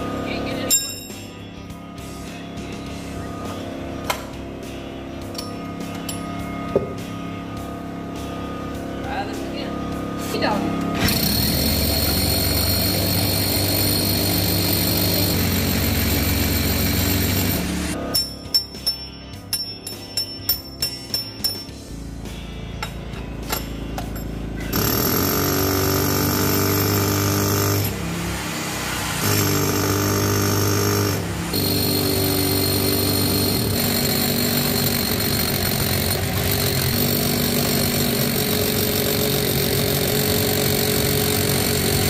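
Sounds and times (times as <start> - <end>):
rotary hammer drilling into concrete: 11.0 - 18.0, 24.7 - 28.0, 29.1 - 42.0.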